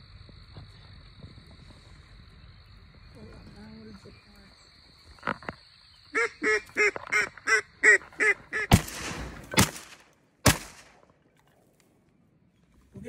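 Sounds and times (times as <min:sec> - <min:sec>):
duck quacks: 0:06.2 - 0:08.8
shotgun shots: 0:08.6 - 0:11.0.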